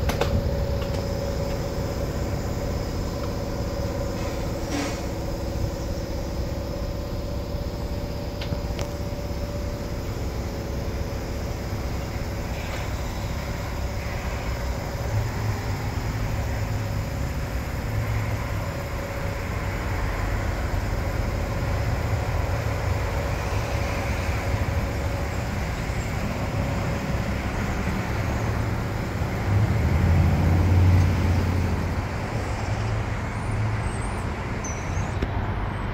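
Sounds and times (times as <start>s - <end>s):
road traffic rumble: 0.0s - 35.9s
vehicle passing by: 26.2s - 34.0s.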